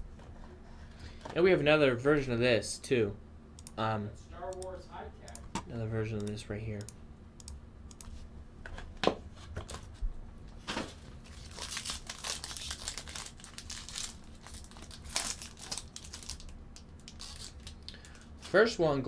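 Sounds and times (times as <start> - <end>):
sharp clicks: 3.6 - 3.8, 4.5 - 8.1
foil wrapper crinkling: 11.2 - 18.6.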